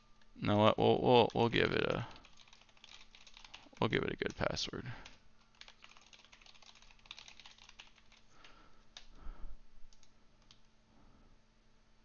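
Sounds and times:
typing on computer keyboard: 0:01.2 - 0:09.1.

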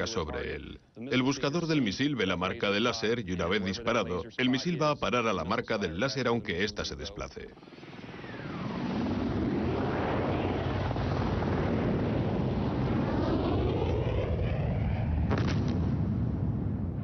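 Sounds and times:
helicopter rotor and turbine: 0:07.6 - 0:15.4.

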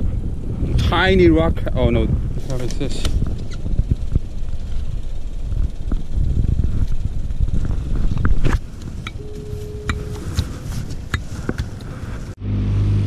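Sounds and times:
wind buffeting microphone: 0:00.0 - 0:12.4
short steady tone: 0:09.1 - 0:10.7.

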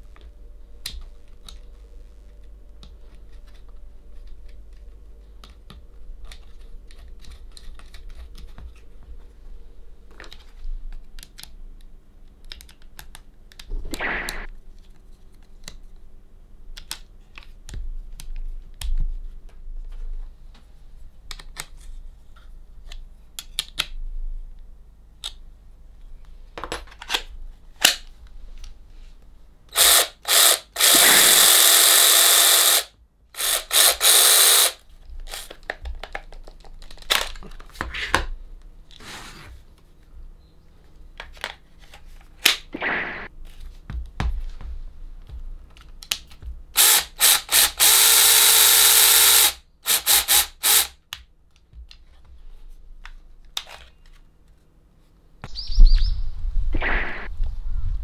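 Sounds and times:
electric chainsaw running: 0:29.7 - 0:34.8, 0:46.8 - 0:50.9.

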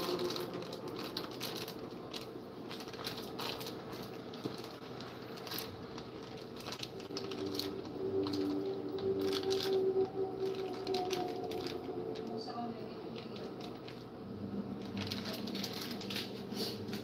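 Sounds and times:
plastic packaging crinkling: 0:00.0 - 0:17.0.

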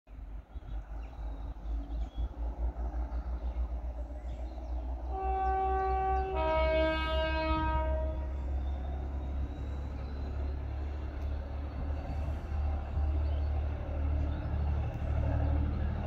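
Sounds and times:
diesel locomotive two-tone horn: 0:05.0 - 0:08.8
low rumble: 0:06.9 - 0:16.0.

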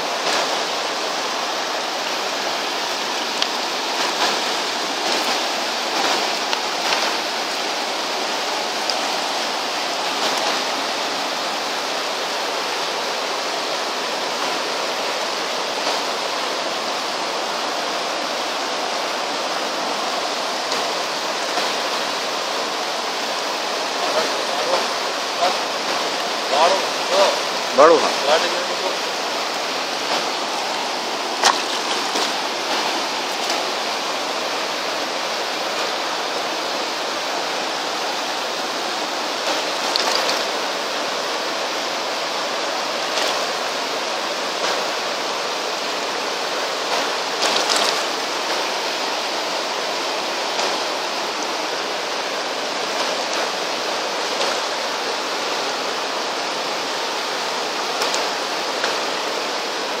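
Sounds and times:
stream rushing over rocks: 0:00.0 - 1:00.0.

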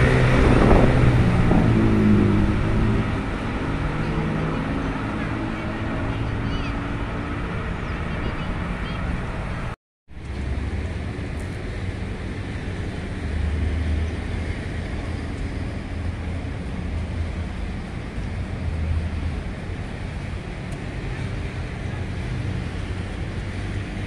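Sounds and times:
distant traffic hum: 0:00.0 - 0:24.0
wind buffeting microphone: 0:00.0 - 0:24.0.

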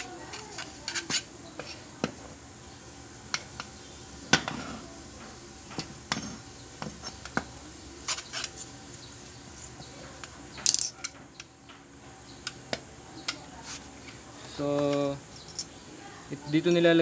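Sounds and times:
metal parts clicking and clinking: 0:10.6 - 0:11.2, 0:14.7 - 0:15.7.

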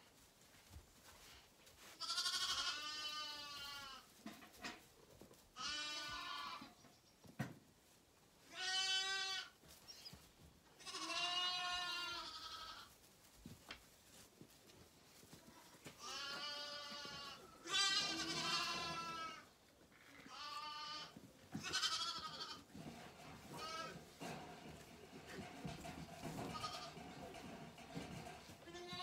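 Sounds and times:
lambs bleating: 0:02.0 - 0:04.0, 0:05.6 - 0:06.7, 0:08.5 - 0:09.6, 0:10.8 - 0:12.9, 0:15.6 - 0:19.5, 0:20.2 - 0:22.7, 0:26.5 - 0:27.0, 0:28.6 - 0:29.0.

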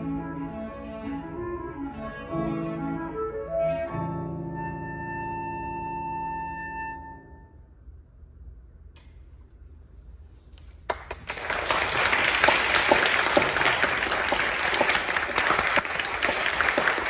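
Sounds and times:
audience applauding: 0:10.9 - 0:17.0.

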